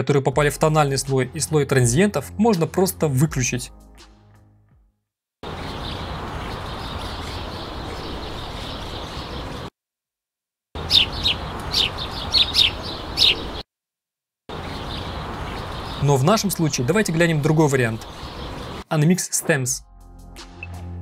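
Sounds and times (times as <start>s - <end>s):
small birds chirping: 5.4s - 9.7s, 10.8s - 13.7s, 14.5s - 18.8s.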